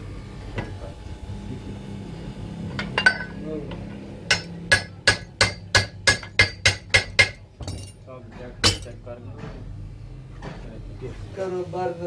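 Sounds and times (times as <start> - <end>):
hammer strikes on steel: 4.3 - 9.6.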